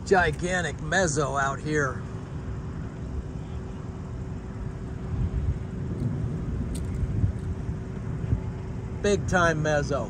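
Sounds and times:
faint steady hum: 0.0s - 10.0s
wind buffeting microphone: 0.0s - 10.0s.

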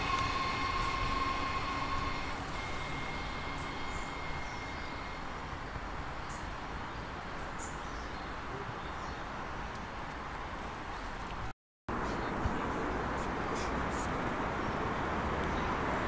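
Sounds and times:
electric motor whine: 0.0s - 5.6s
train rumble: 0.0s - 5.7s.

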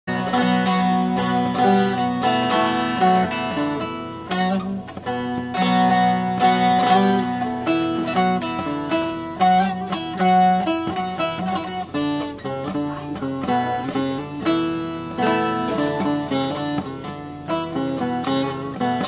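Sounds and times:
saz strummed melody: 0.0s - 19.0s.

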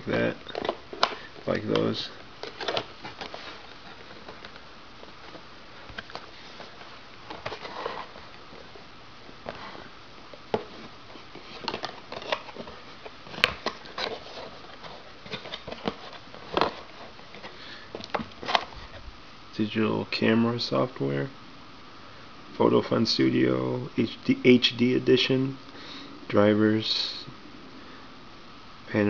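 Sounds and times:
cardboard box rustling: 0.1s - 8.8s, 9.4s - 19.0s.

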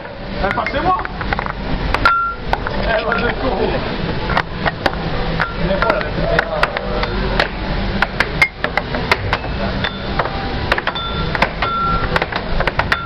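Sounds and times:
arcade background noise: 0.0s - 13.0s
air hockey puck clacking: 4.3s - 13.0s.

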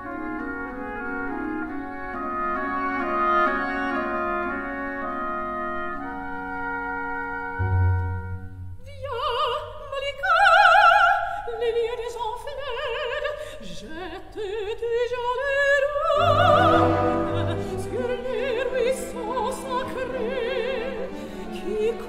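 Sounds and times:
orchestral accompaniment: 0.0s - 8.8s, 16.0s - 22.0s
operatic singing: 8.9s - 22.0s.

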